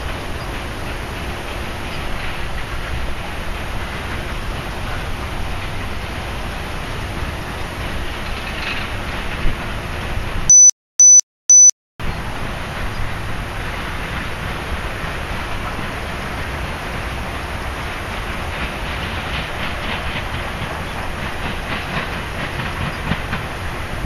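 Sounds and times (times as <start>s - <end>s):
rushing noise with low rumble: 0.0s - 10.5s, 12.0s - 24.0s
short high electronic beeps: 10.5s - 11.8s.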